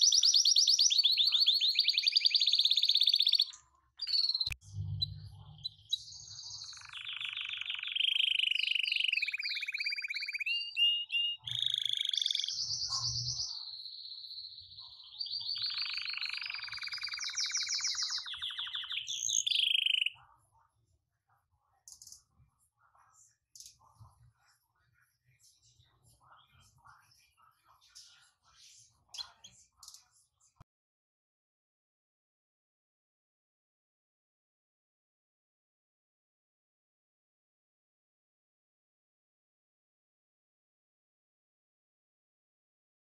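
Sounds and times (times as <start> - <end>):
canaries singing trills: 0.0 - 20.2, 25.8 - 30.1.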